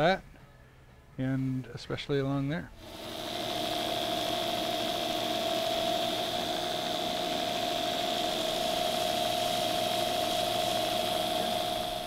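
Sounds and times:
belt grinder whining: 0:02.8 - 0:12.0.

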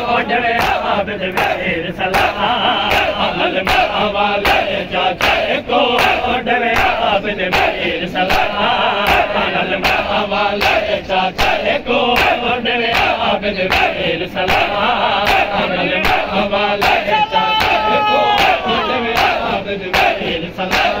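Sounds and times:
men chanting in unison: 0:00.0 - 0:21.0
hands slapping bare chests: 0:12.2 - 0:18.6.

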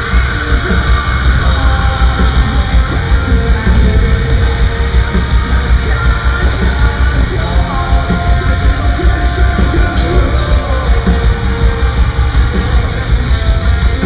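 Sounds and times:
heavy metal band playing live: 0:00.0 - 0:14.0
lead guitar line: 0:00.0 - 0:14.0.

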